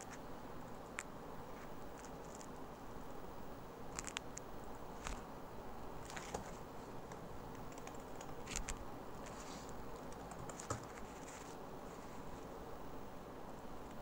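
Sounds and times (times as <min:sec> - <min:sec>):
faint background hiss: 0:00.0 - 0:14.0
keyboard key presses: 0:10.0 - 0:11.0.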